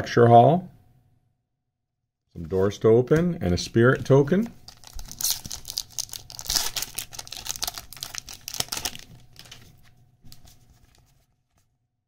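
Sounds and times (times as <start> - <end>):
foil wrapper tearing and crinkling: 4.6 - 10.5.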